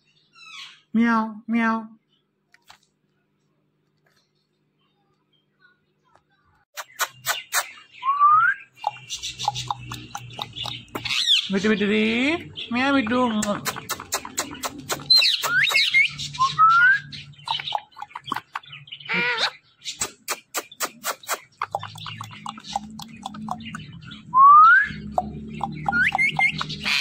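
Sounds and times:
sharp clicks: 8.8s - 11.2s, 13.4s - 15.8s
parakeet whistling: 24.3s - 27.0s.

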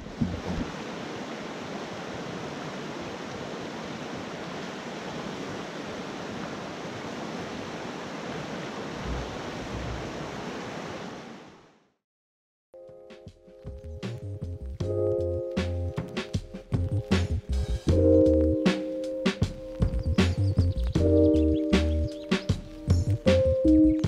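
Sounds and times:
river rushing over rocks: 0.0s - 11.5s.

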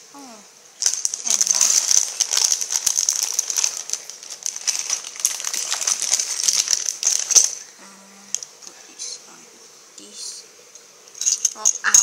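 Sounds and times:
plastic bag crinkling: 0.8s - 7.7s.

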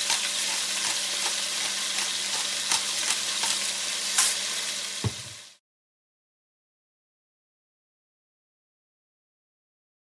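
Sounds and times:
beef sizzling in a pot: 0.0s - 5.6s.

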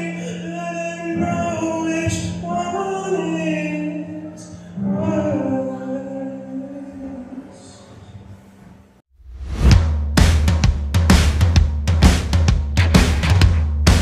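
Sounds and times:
man singing into microphone: 0.0s - 8.0s.

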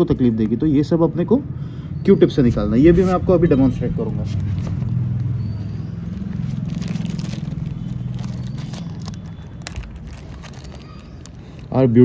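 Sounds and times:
vehicle engine humming: 2.9s - 12.0s
plastic packet crackling: 6.0s - 12.0s.

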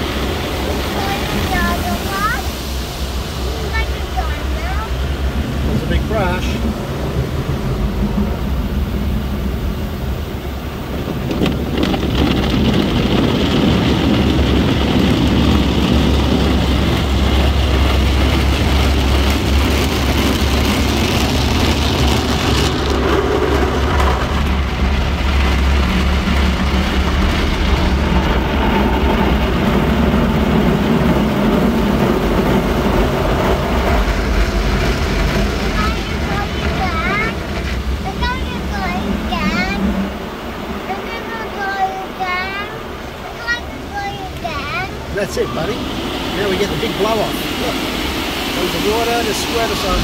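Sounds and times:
low machinery rumble: 0.0s - 50.0s
water spray: 0.0s - 50.0s
wash brushes beating on car: 10.7s - 42.8s.

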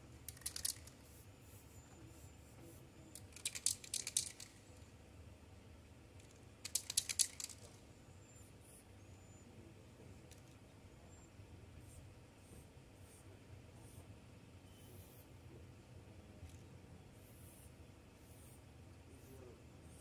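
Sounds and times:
spray can ball rattling: 0.3s - 1.0s, 3.2s - 4.6s, 6.6s - 7.7s.

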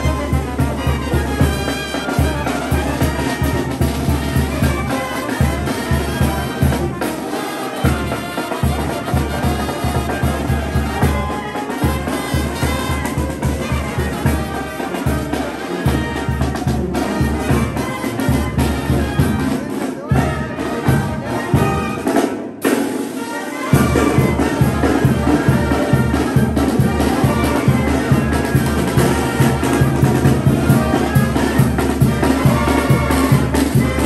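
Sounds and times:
brass band with trumpets: 0.0s - 34.0s.

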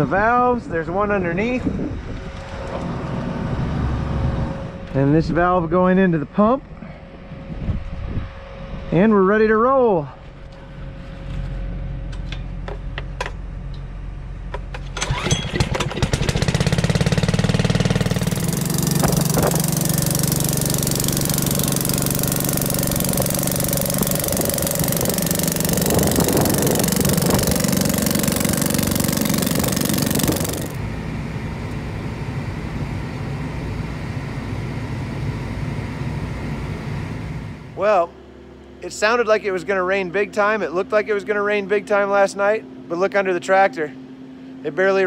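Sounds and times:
tractor engine inside cab: 10.2s - 44.2s
small gasoline engine running: 14.8s - 33.6s.

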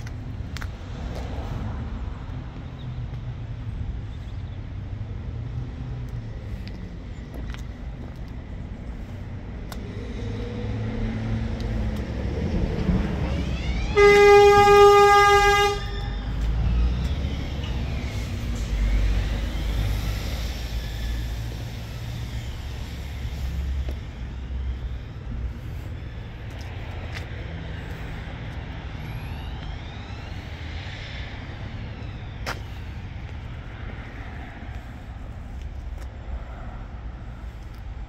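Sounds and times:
vehicle horn blast: 13.9s - 16.1s.

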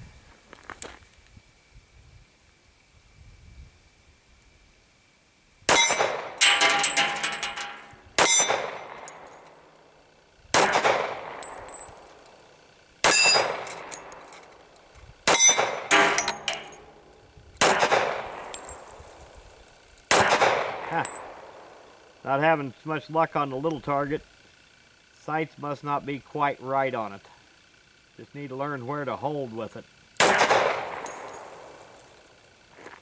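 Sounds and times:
steel plate target ringing: 5.7s - 9.7s, 10.6s - 12.2s, 13.0s - 14.5s, 15.3s - 19.4s, 20.1s - 22.0s, 30.2s - 32.2s
pistol shots with echo: 8.2s - 9.4s, 10.6s - 11.7s, 13.0s - 14.2s, 15.3s - 16.9s, 17.6s - 18.9s, 20.1s - 21.8s, 30.2s - 32.0s.

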